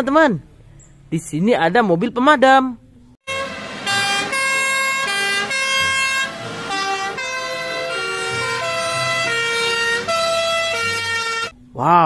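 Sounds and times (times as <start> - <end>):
two-tone fire engine horns: 3.3 - 11.5.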